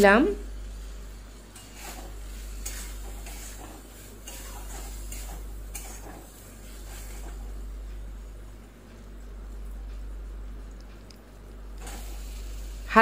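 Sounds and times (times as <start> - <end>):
spatula scraping metal pan: 1.5 - 7.4.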